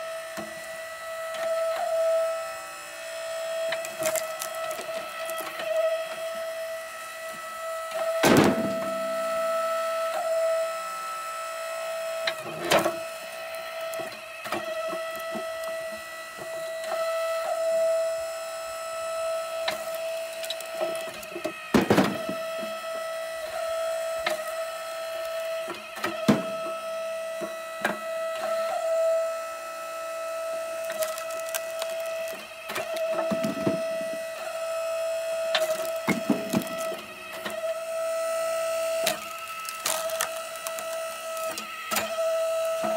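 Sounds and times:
log splitter motor hum: 0.0 - 42.9
wood cracking as it splits: 3.2 - 6.6, 12.3 - 16.0, 19.2 - 23.0, 30.7 - 34.2, 35.5 - 38.1, 38.8 - 42.9.

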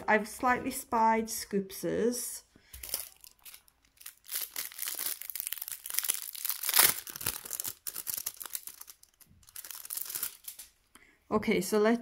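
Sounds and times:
packaging crinkling and rustling: 2.8 - 10.8.

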